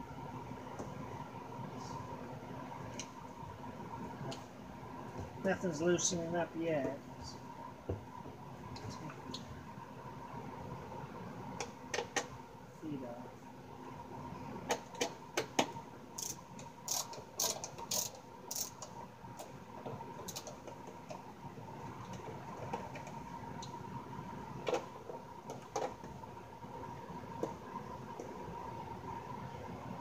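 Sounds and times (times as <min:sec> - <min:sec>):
screwdriver clicking on screws: 0:16.2 - 0:18.9.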